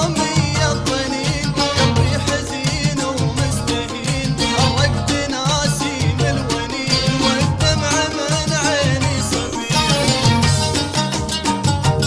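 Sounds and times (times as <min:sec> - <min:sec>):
drums steady beat: 0:00.0 - 0:12.0
wavering melody: 0:08.9 - 0:12.0.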